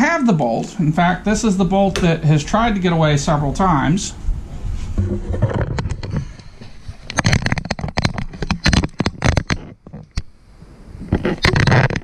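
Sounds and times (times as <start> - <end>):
handling clicks and rustles: 5.0 - 10.3.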